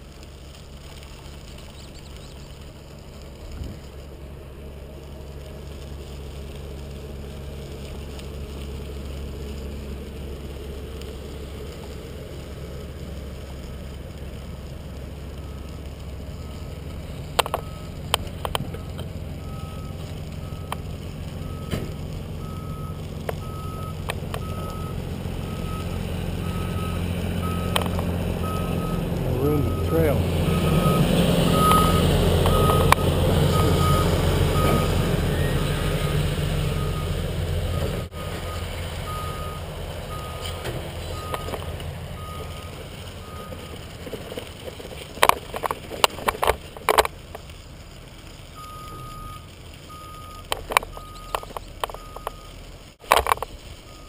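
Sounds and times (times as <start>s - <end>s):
heavy machinery engine hum: 0.0s - 54.0s
reversing alarm beeping: 17.4s - 18.0s, 18.7s - 41.6s, 42.2s - 43.8s, 48.6s - 52.6s.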